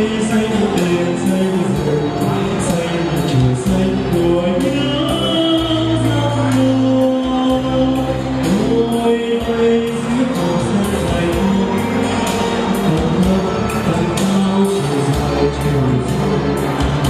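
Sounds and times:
backing track with steady beat: 0.0 - 17.0
man singing into a microphone: 0.0 - 17.0.

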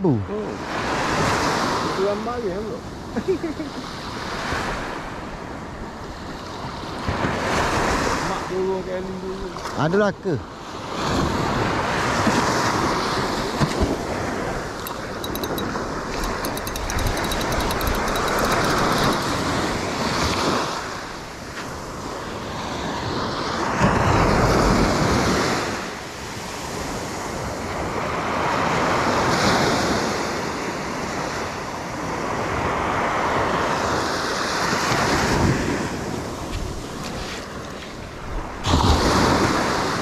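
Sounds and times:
waves washing up a beach: 0.0 - 9.8, 21.9 - 40.0.

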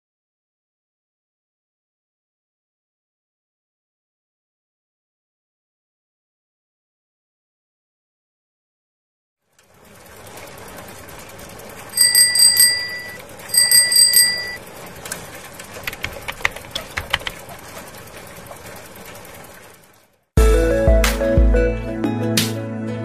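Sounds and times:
small bell trilling: 11.9 - 14.6
light uneven clicks: 12.0 - 17.9
soft music: 20.4 - 23.0.

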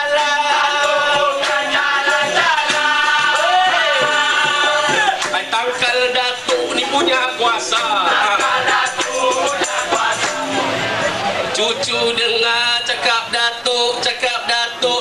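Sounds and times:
person singing through microphone: 0.0 - 15.0
hand drums: 0.1 - 10.5.

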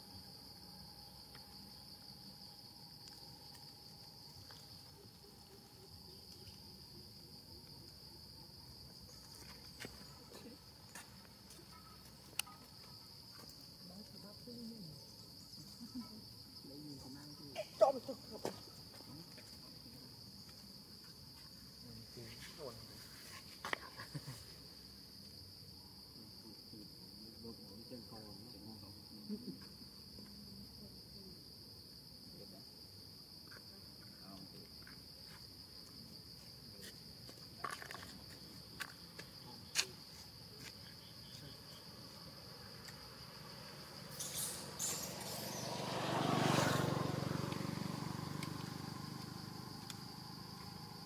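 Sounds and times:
high-pitched insect drone: 37.7 - 51.0.

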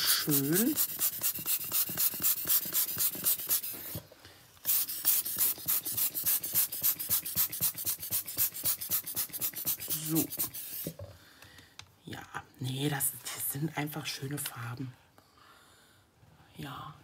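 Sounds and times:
hand rubbing over paper: 0.0 - 4.0, 4.6 - 11.0.

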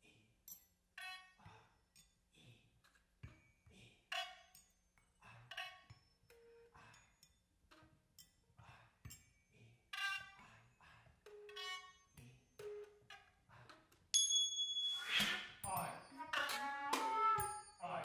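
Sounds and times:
percussion sounds: 14.0 - 18.0
tuning-fork tones: 14.2 - 18.0
flute notes: 15.7 - 18.0.

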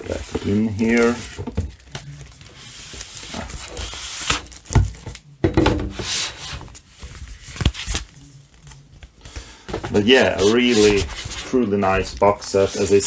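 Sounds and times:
paper rustling and rubbing: 0.0 - 4.5, 9.9 - 13.0.

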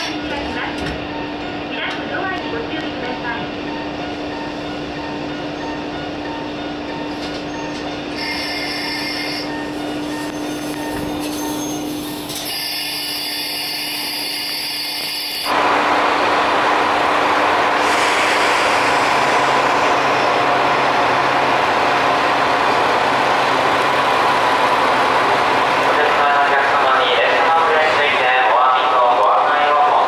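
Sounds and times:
train rolling: 0.0 - 30.0.

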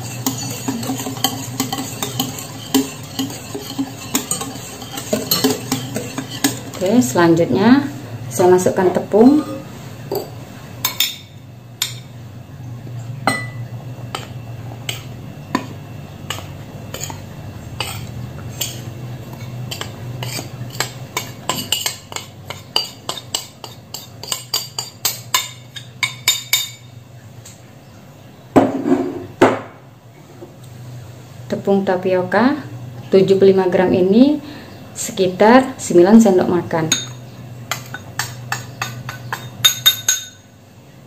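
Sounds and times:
metal spoon clinking on bowls: 0.0 - 7.1, 13.3 - 15.7, 16.3 - 17.2, 17.8 - 26.9, 36.9 - 40.4
steady low hum: 0.0 - 41.0.

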